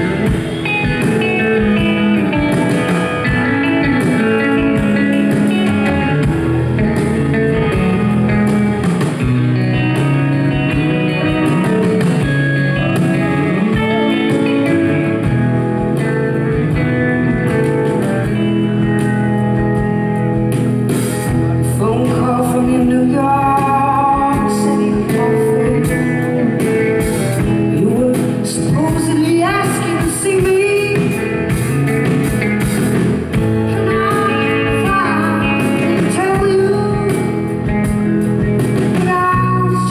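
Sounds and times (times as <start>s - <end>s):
drums: 0.0s - 39.9s
electric guitar: 0.0s - 39.9s
keyboard: 0.0s - 39.9s
woman singing: 21.5s - 31.4s, 33.6s - 37.9s, 38.8s - 39.9s.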